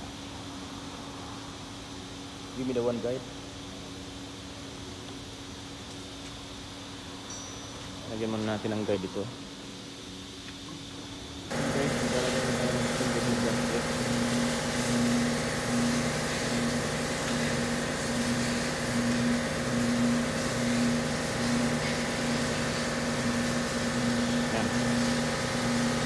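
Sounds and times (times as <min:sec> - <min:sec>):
machinery humming: 0:10.8 - 0:26.0.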